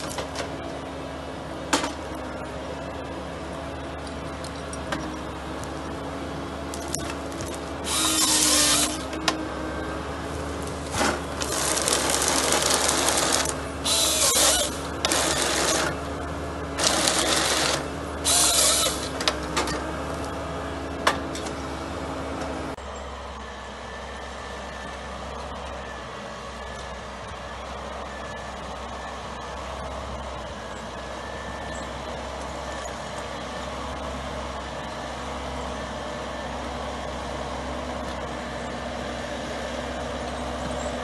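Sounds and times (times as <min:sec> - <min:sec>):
diesel engine running: 0:00.0 - 0:41.0
harvester head bursts of noise: 0:07.8 - 0:09.2, 0:16.8 - 0:19.7.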